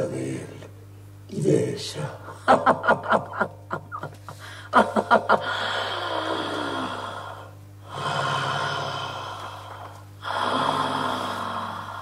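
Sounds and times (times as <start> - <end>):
person breathing hard: 4.3 - 4.8, 5.4 - 12.0.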